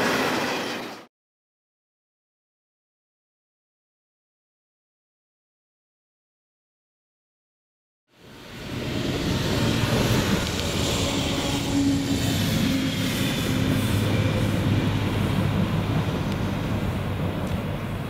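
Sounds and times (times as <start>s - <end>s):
diesel locomotive engine drone: 8.1s - 18.0s.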